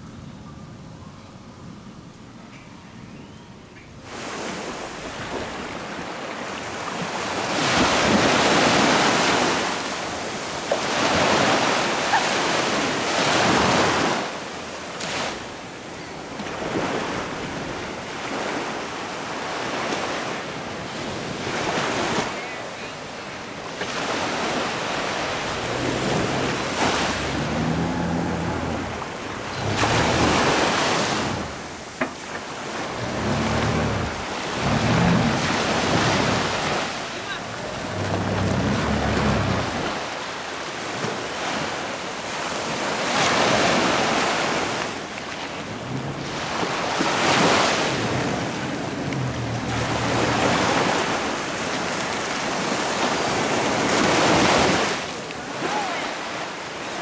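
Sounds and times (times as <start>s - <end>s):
sea surf breaking on beach: 4.0s - 57.0s
wind gusting over microphone: 24.1s - 41.1s, 43.6s - 52.8s.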